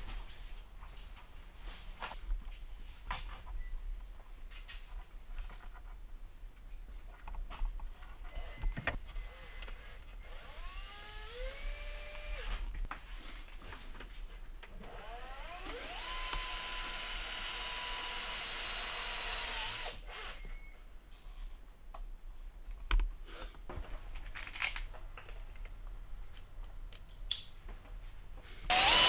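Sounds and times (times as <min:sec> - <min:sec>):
small electric motor whine: 0:09.2 - 0:12.5, 0:14.9 - 0:20.6, 0:28.7 - 0:29.0.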